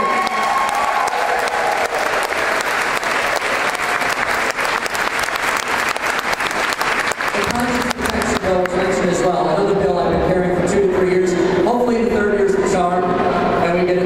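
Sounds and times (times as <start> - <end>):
cheers and whoops: 0.0 - 4.3
crowd applauding: 0.0 - 9.0.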